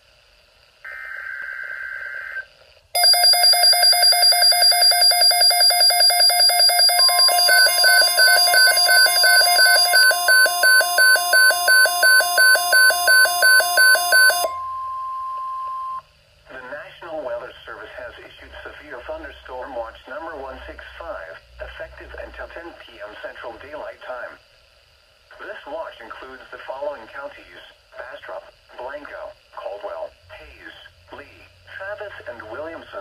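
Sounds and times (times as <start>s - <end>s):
rapidly pulsing electronic beeps: 3.0s - 14.6s
buzzing digital data tones: 3.0s - 14.8s
steady alert tone: 3.0s - 16.0s.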